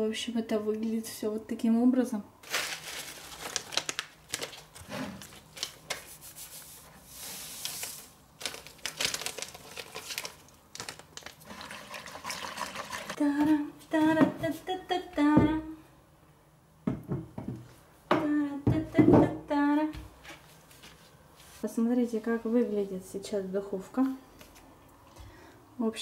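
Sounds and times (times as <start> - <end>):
paper towels crinkling: 2.4 - 12.4.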